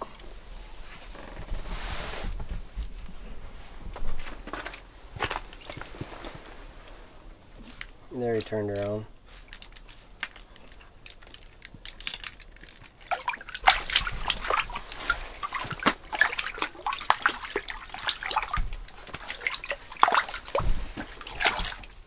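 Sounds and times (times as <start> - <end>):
fish splashing in water: 12.8 - 22.0.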